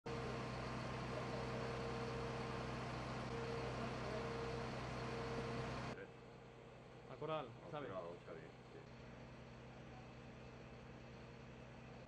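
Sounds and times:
faint high whine: 0.1s - 6.1s
fire engine idling hum: 0.1s - 12.0s.

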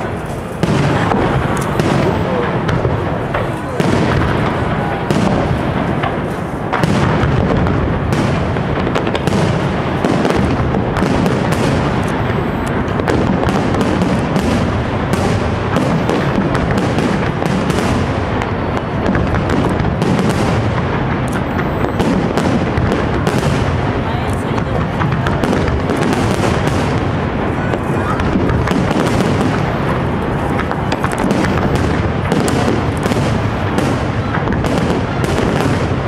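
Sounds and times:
fireworks bursts and crackling: 0.0s - 36.0s.

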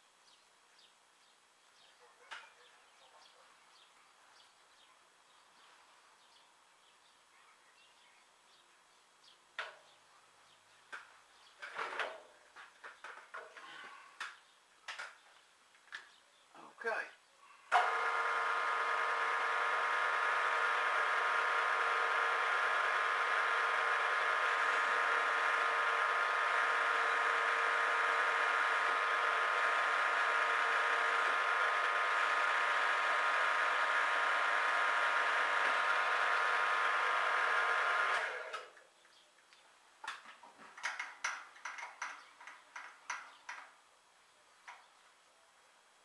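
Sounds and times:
mill-drill whining: 17.7s - 38.7s
drill boring through metal: 17.8s - 38.5s.

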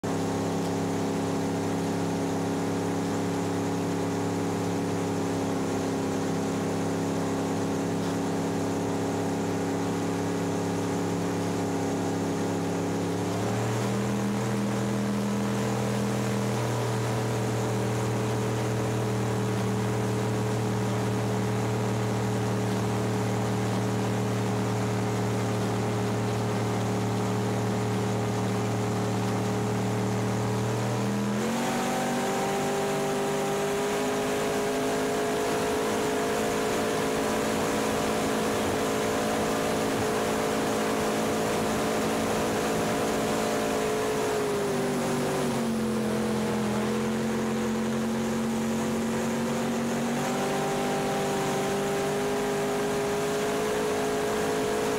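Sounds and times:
boat engine running: 0.0s - 54.9s.

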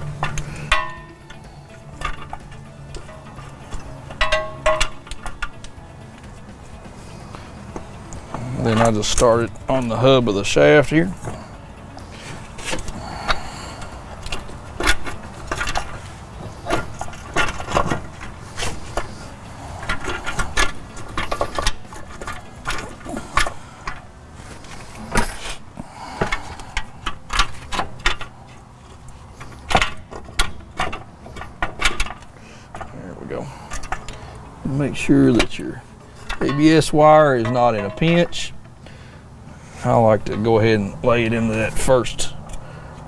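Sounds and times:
metallic clinks and knocks: 0.0s - 6.5s, 36.2s - 38.8s.

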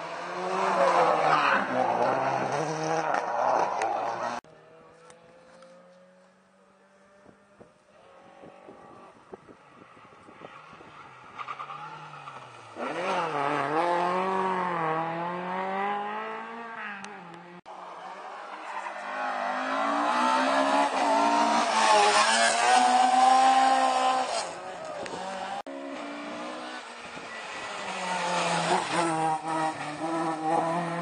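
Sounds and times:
rally car engines revving: 0.0s - 31.0s.

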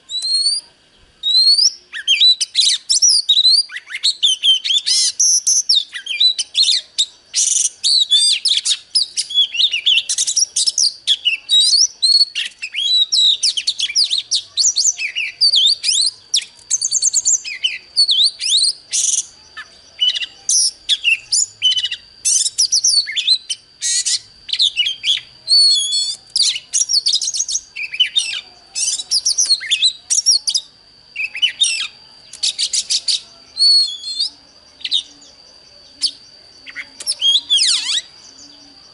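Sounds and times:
bird singing varied whistles: 0.0s - 38.9s.

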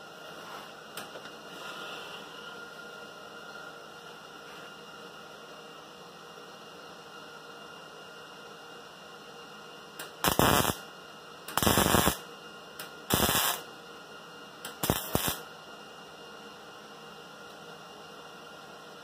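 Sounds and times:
steady low hum: 0.0s - 19.0s
welder arc crackling: 10.0s - 10.8s, 11.5s - 12.2s, 12.8s - 13.7s, 14.7s - 15.5s.

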